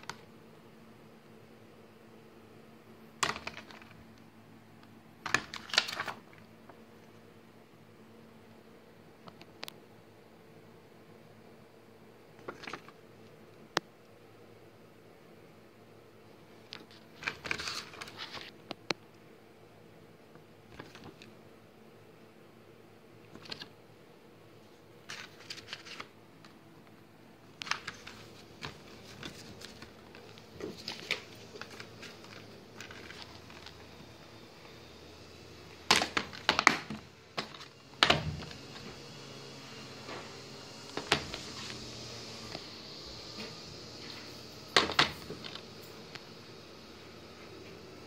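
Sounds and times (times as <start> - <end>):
plastic cases clicking and knocking: 3.2 - 4.0, 35.9 - 38.6, 44.7 - 45.6.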